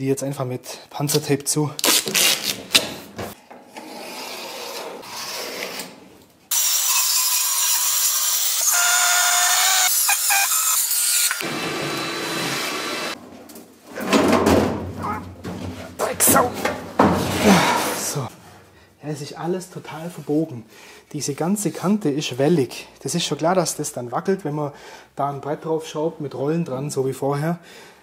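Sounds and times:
tape handling and tearing: 0:01.1 - 0:03.1
duct tape ripping off roll: 0:01.8 - 0:03.0.

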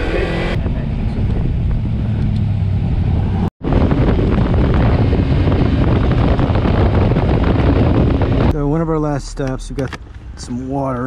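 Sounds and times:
wind rushing over microphone: 0:00.0 - 0:08.9
motorcycle engine running: 0:03.6 - 0:08.5.

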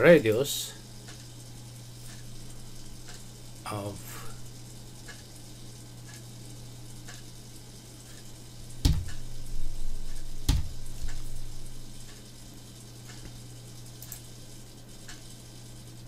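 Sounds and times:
low electrical hum: 0:00.0 - 0:16.0
sharp knocks on desk: 0:08.8 - 0:09.2, 0:10.5 - 0:10.8.

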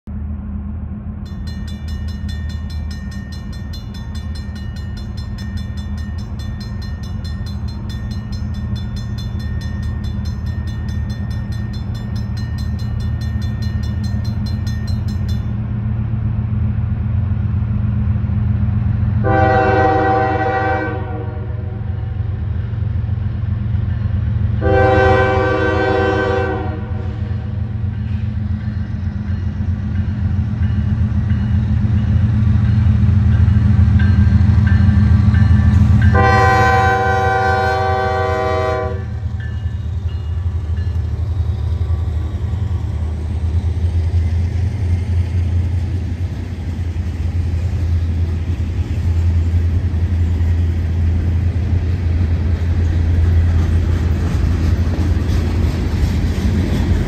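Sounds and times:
diesel locomotives rumbling: 0:00.0 - 0:57.0
crossing warning bell ringing: 0:01.2 - 0:15.8, 0:23.7 - 0:42.8
locomotive horn blasts: 0:19.2 - 0:21.9, 0:24.6 - 0:27.5, 0:36.0 - 0:39.3.

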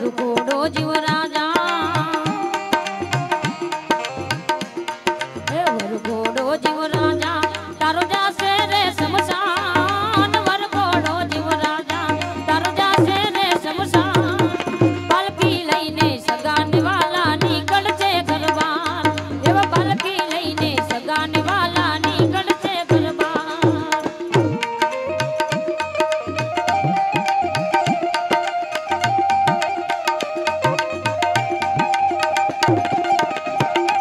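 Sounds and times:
woman singing: 0:00.0 - 0:04.4, 0:05.2 - 0:28.4
tabla rhythm: 0:00.0 - 0:34.0.

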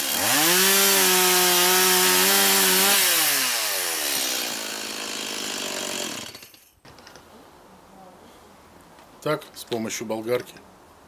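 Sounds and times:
chainsaw cutting log: 0:00.0 - 0:06.7.

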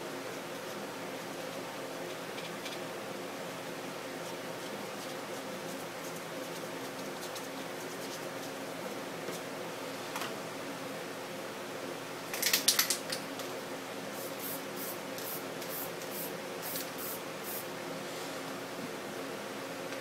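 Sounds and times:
spray-paint can hissing: 0:14.2 - 0:17.6.

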